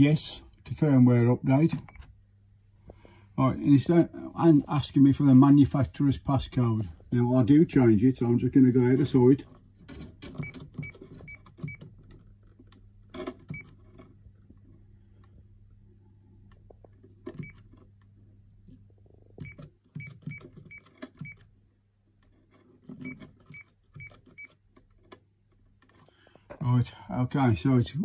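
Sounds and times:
keypad beeps: 10.4s - 11.9s, 19.4s - 21.4s, 23.0s - 24.6s.

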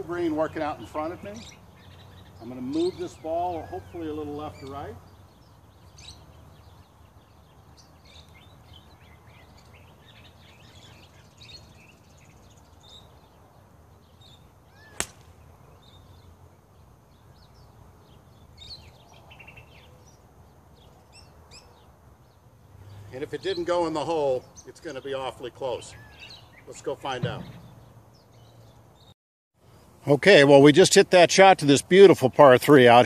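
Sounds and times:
faint birds chirping: 0.0s - 33.0s
golf club striking ball: 14.9s - 15.4s.

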